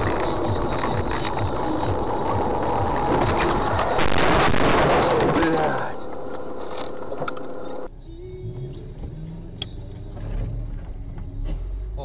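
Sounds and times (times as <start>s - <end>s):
car engine and road noise: 0.0s - 12.0s
low engine hum: 6.3s - 12.0s.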